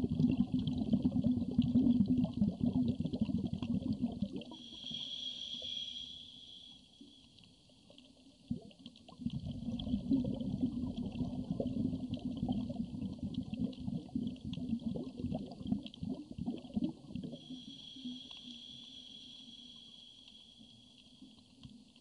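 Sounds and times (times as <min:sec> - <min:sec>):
bubbles gurgling underwater: 0:00.0 - 0:04.6, 0:08.4 - 0:17.4
breath hissing through regulator: 0:04.5 - 0:07.0, 0:17.2 - 0:21.0.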